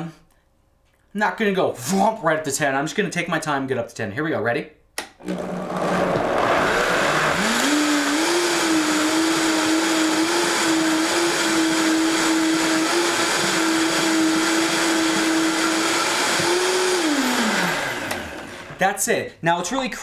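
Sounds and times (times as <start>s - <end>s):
blender motor running: 5.2s - 18.8s.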